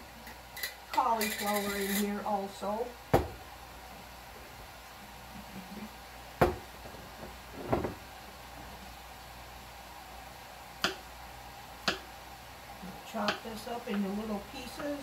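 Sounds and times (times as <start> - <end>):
objects knocking on kitchen counter: 3.1 - 3.4, 6.4 - 8.0.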